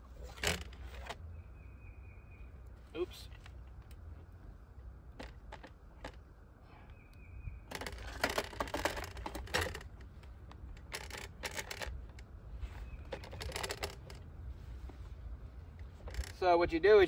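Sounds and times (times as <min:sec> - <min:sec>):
metal frame clicking and rattling: 0:00.2 - 0:01.2, 0:05.1 - 0:06.2, 0:07.7 - 0:14.3, 0:15.7 - 0:16.5.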